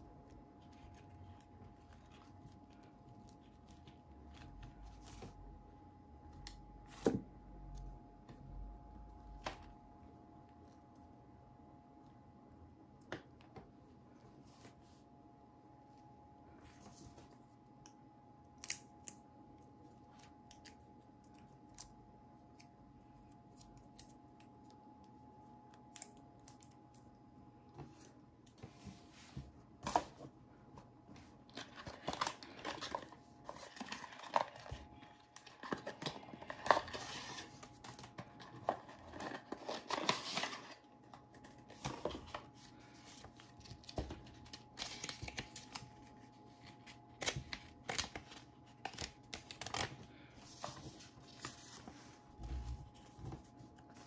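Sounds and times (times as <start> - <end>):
paper packaging crinkling: 31.4 - 54.0.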